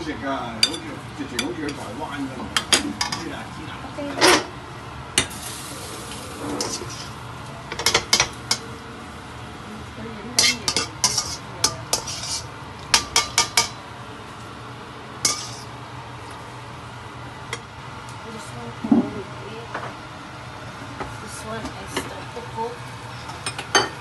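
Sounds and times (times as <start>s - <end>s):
metal utensils clinking on wok: 10.4s - 13.7s, 15.3s - 15.7s.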